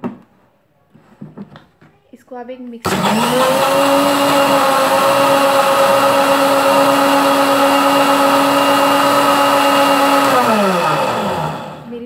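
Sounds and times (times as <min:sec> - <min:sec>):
mixer grinder motor whine: 0:02.9 - 0:12.0.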